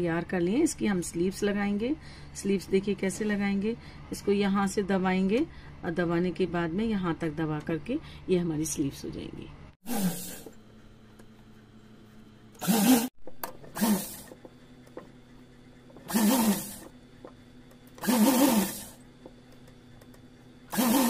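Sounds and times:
sewing machine running in bursts: 12.6s - 14.4s, 16.0s - 16.9s, 18.0s - 19.0s, 20.7s - 21.0s.

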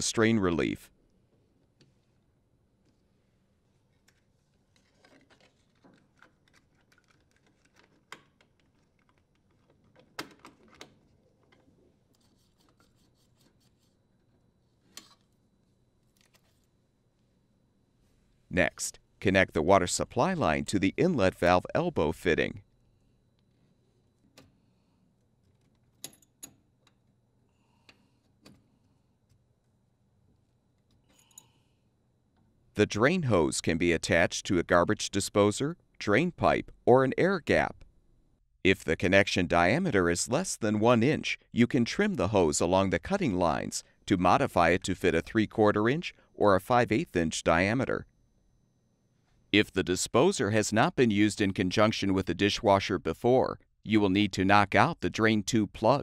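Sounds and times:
paper label handling clicks and rustles: 4.0s - 13.9s.

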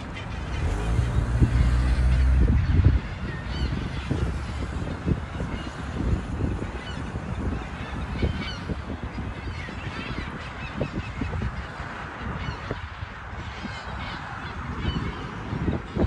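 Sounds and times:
steady low rumble: 0.0s - 6.2s
birds honking: 0.0s - 16.0s.

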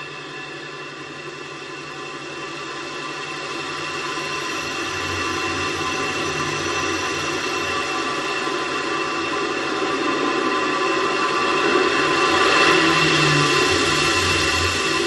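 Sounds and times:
multi-tone whine: 0.0s - 15.0s
steady rushing noise: 3.5s - 15.0s.

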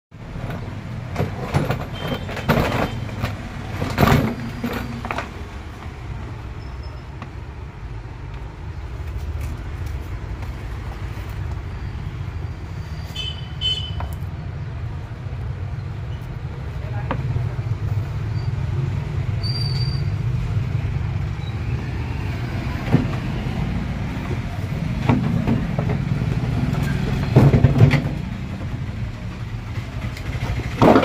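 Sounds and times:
road traffic rumble: 0.1s - 31.0s
knocks and clatters: 0.2s - 6.3s, 24.2s - 31.0s.

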